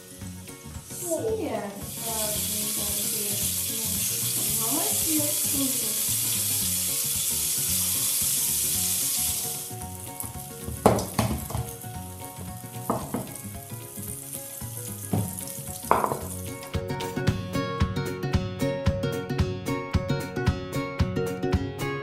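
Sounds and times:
food sizzling in hot oil: 0:00.0 - 0:16.8
sharp knocks and taps: 0:12.9 - 0:13.4.

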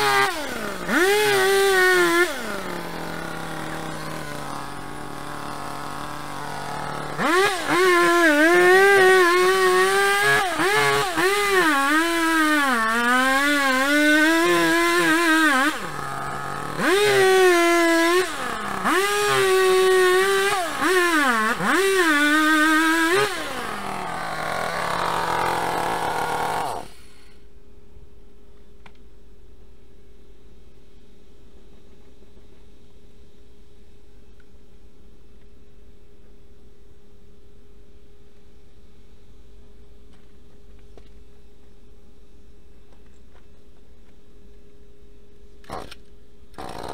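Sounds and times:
chainsaw cutting wood: 0:00.0 - 0:27.4, 0:45.6 - 0:46.9.

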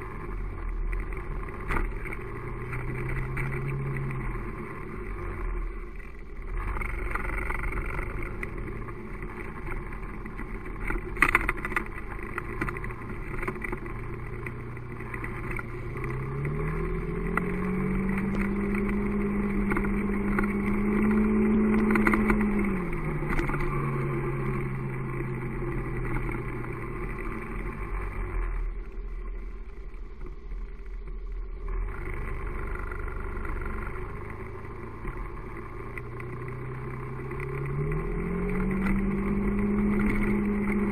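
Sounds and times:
car engine and road noise: 0:00.0 - 0:40.9.

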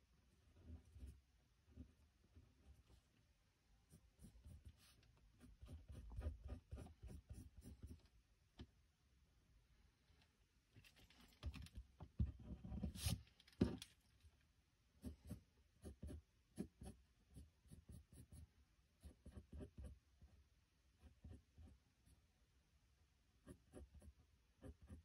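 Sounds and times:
pencil scratching on paper: 0:03.9 - 0:08.0, 0:15.0 - 0:20.0, 0:23.4 - 0:25.0.

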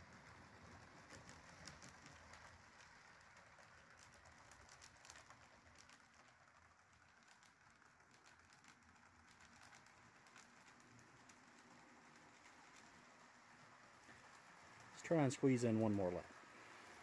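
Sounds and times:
model train running on track: 0:00.0 - 0:17.0.

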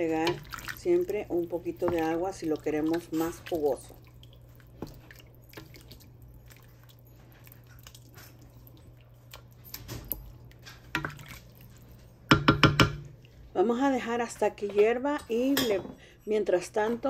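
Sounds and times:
spoon stirring stew: 0:00.0 - 0:13.4
low steady hum: 0:00.0 - 0:17.0
spoon knocking metal pan: 0:12.3 - 0:13.1.

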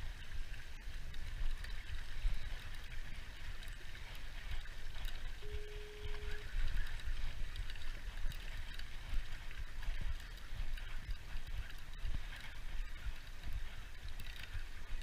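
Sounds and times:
water washing along shore: 0:00.0 - 0:15.0
wind buffeting microphone: 0:00.0 - 0:15.0.

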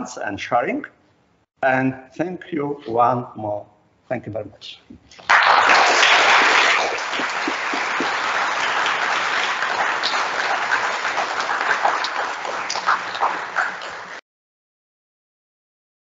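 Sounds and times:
audience applauding: 0:05.2 - 0:14.2.

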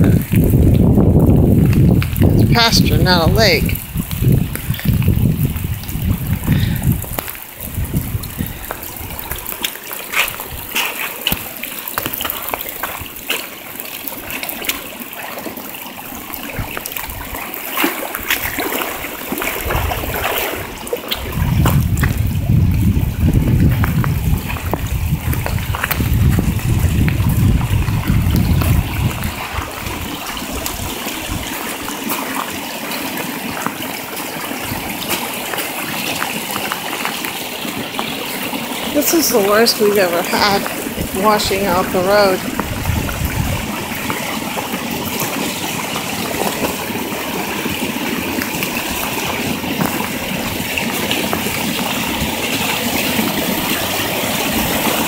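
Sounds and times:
stormwater rushing and splashing: 0:00.0 - 0:55.0
heavy low rumble: 0:21.3 - 0:30.1.

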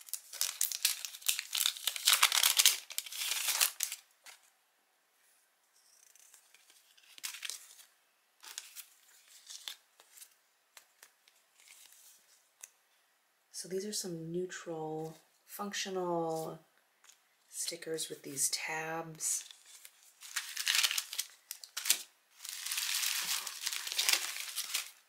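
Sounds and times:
paper envelope tearing: 0:00.0 - 0:04.0, 0:19.4 - 0:25.0
paper sheets rustling: 0:06.2 - 0:12.4, 0:19.4 - 0:25.0.

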